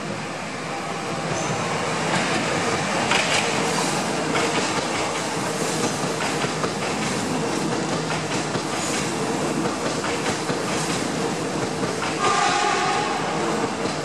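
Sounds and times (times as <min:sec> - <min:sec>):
train wheels rushing on rails: 0:00.0 - 0:14.0.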